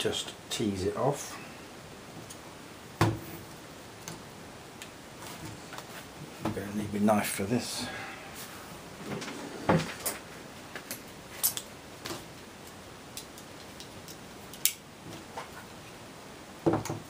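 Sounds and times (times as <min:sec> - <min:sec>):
small objects clicking and knocking: 0:10.9 - 0:14.8.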